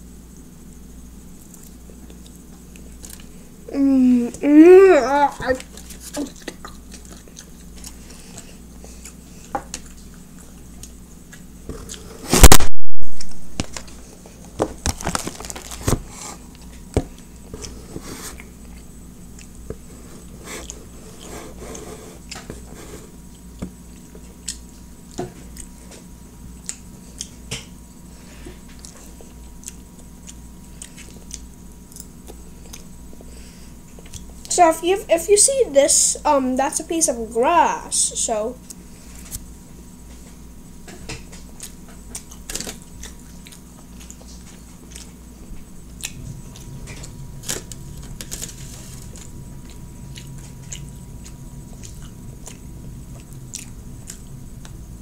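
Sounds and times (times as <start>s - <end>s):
close-up chewing and mouth sounds: 1.4s - 3.4s, 5.4s - 12.6s, 13.8s - 34.5s, 38.6s - 54.9s
loud distorted bump: 12.3s - 13.6s.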